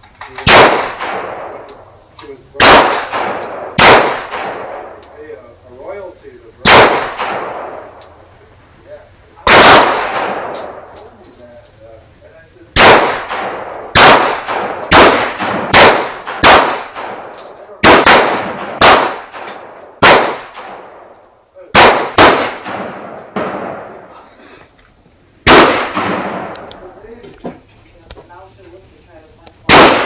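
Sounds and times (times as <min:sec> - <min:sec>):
pistol shots: 0:00.4 - 0:01.8, 0:02.6 - 0:05.1, 0:06.6 - 0:08.1, 0:09.4 - 0:11.0, 0:12.8 - 0:21.1, 0:21.7 - 0:24.1, 0:25.4 - 0:26.8, 0:29.7 - 0:30.0.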